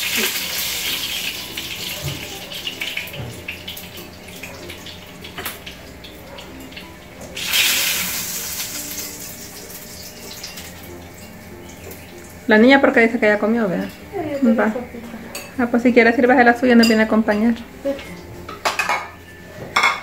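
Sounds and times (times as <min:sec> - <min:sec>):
chicken sizzling in hot oil: 0:00.0 - 0:13.4.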